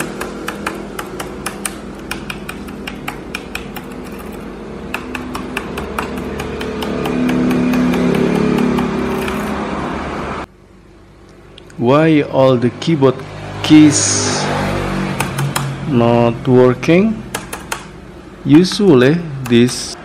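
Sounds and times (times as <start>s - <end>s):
laptop keyboard keys clicking: 0.0s - 9.5s, 15.2s - 15.7s, 17.3s - 17.9s
vehicle engine hum: 0.0s - 11.6s, 12.2s - 18.5s.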